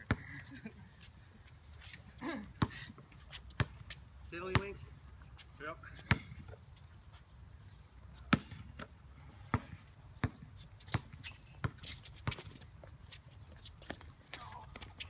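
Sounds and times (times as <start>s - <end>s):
basketball bouncing on hard court: 6.0s - 6.5s, 8.3s - 8.9s, 9.5s - 12.6s.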